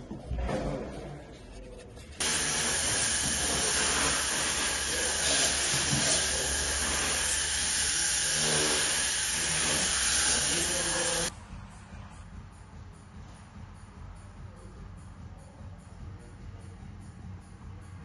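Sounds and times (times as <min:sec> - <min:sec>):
loud steady hiss: 0:02.2 - 0:11.3.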